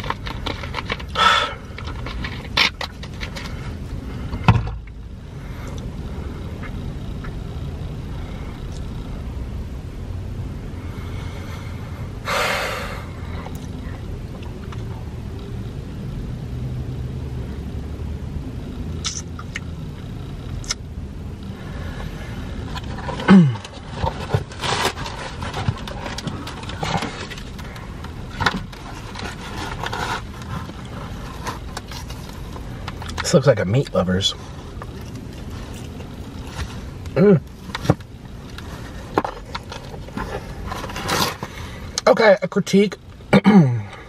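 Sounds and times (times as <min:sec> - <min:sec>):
low rumble inside car: 0:00.0 - 0:44.0
cardboard box crackling and scraping: 0:22.7 - 0:27.6, 0:28.6 - 0:32.5, 0:38.6 - 0:41.6.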